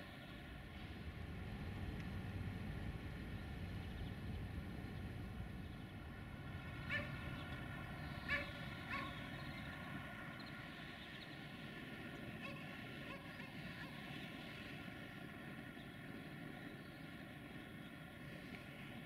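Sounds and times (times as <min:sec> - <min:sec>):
low outdoor rumble: 0:00.0 - 0:19.0
short animal calls: 0:06.8 - 0:07.2, 0:08.2 - 0:09.2.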